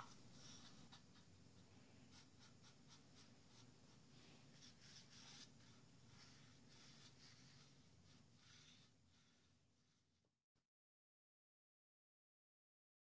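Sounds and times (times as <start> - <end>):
paintbrush swishing on wood: 0.2 - 9.5.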